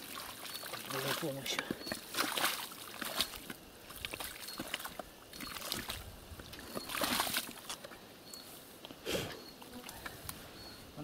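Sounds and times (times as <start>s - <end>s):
shovel scraping wet mud: 0.0s - 7.8s.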